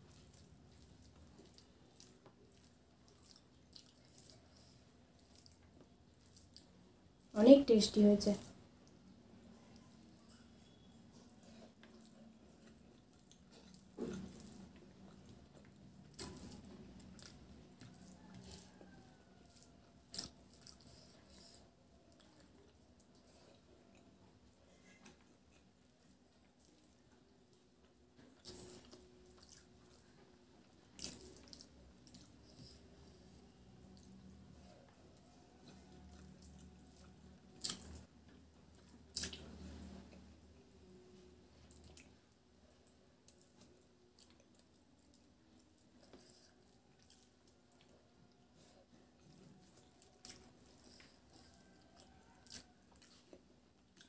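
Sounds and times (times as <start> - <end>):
chewing mouth sounds: 0.0 - 7.3, 8.4 - 40.9, 41.6 - 54.0
fingers squishing rice: 0.0 - 7.3, 8.4 - 24.1, 24.8 - 40.7
wet eating by hand: 0.0 - 7.3, 8.4 - 54.0.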